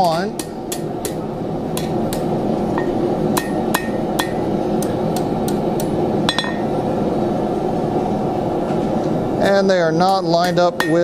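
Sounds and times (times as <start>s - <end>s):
hammer striking steel on anvil: 0.0s - 6.7s, 10.0s - 11.0s
high metallic ring: 2.8s - 4.5s, 6.3s - 6.8s.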